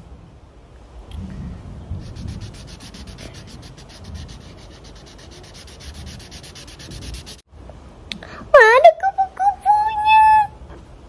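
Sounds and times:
marker rubbing on paper: 0:02.0 - 0:07.4.

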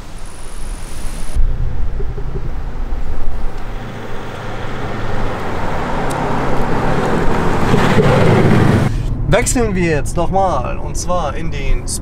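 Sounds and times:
diesel car driving past: 0:01.4 - 0:09.3.

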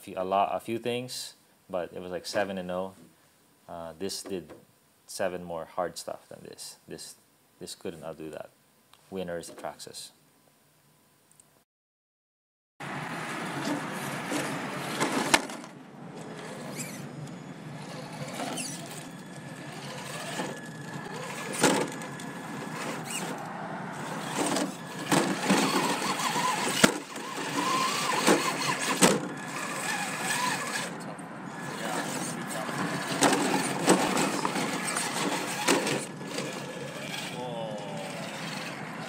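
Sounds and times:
small electric motor and gears: 0:13.2 - 0:39.0.

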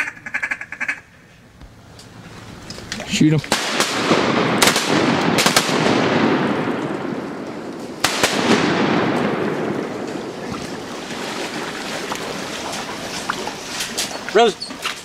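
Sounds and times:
shotgun shots: 0:03.5 - 0:10.3.

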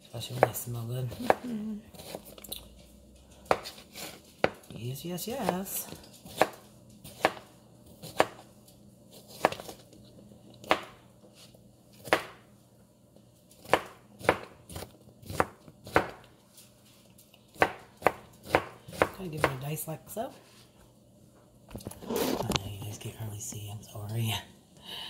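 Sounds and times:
knife chopping on cutting mat: 0:03.4 - 0:04.6, 0:05.4 - 0:08.5, 0:09.1 - 0:09.9, 0:10.6 - 0:12.5, 0:13.6 - 0:16.3, 0:17.5 - 0:19.7.

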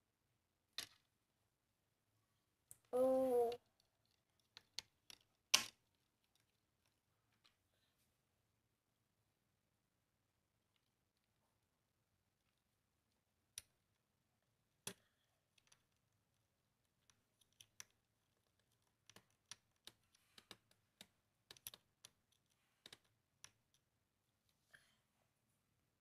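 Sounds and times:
plastic toy parts clicking: 0:03.7 - 0:07.6, 0:14.8 - 0:16.1, 0:16.8 - 0:23.8.

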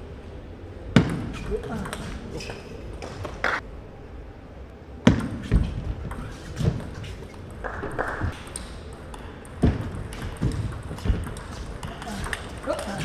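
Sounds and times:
table tennis ball clicking: 0:06.1 - 0:13.0.

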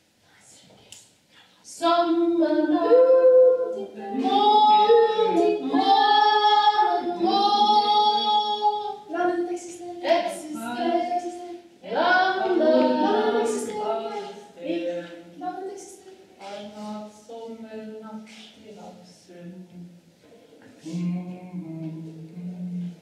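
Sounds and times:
women singing unaccompanied: 0:01.6 - 0:19.9.

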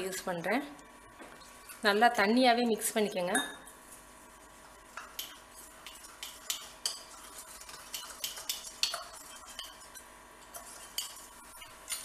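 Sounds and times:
spoon clinking in metal bowl: 0:03.3 - 0:03.7, 0:07.9 - 0:12.0.

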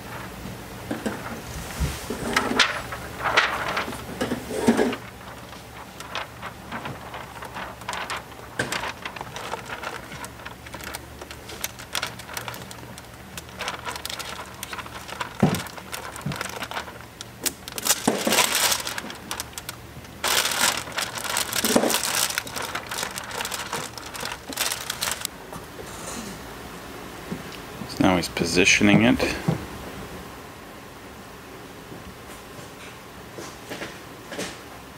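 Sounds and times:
plastic film crinkling: 0:01.0 - 0:25.3.

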